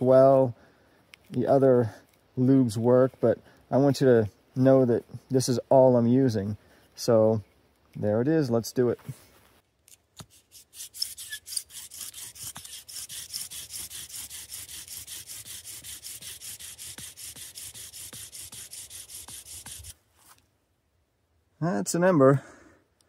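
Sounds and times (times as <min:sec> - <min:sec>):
bow drill grinding friction: 0:10.2 - 0:20.0.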